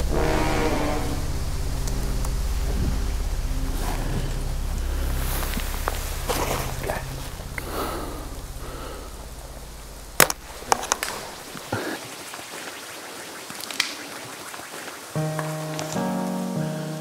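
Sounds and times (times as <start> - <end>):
low hum: 0.0 - 11.8
light snaps and rustles: 15.3 - 16.4.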